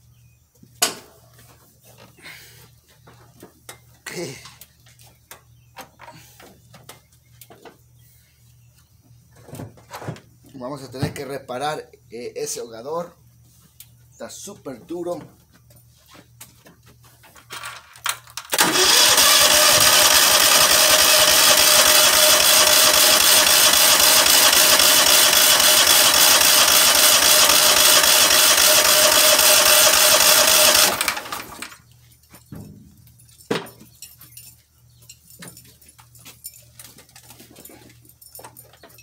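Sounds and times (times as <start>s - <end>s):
engine cranking without starting: 18.4s - 31.8s.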